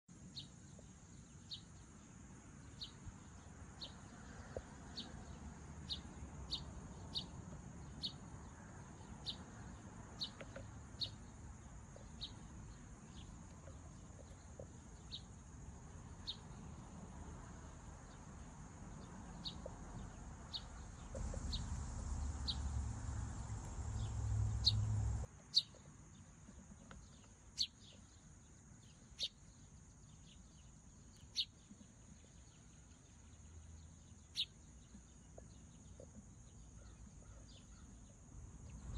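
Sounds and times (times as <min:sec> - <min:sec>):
high insect drone: 0:15.0 - 0:25.3
low rumble: 0:20.9 - 0:25.3.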